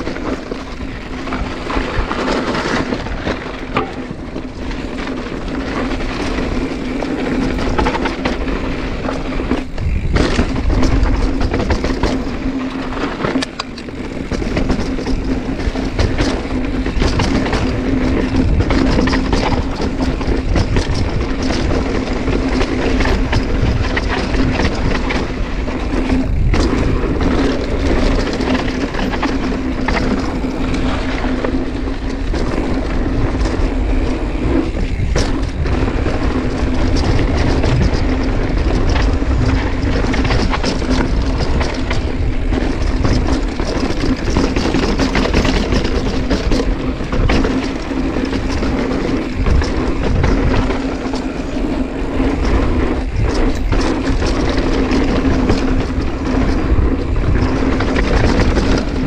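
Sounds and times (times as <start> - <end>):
bicycle freehub buzzing: 0.0 - 59.0
bike frame and tyre rattle: 0.0 - 59.0
wind rushing over microphone: 0.0 - 59.0.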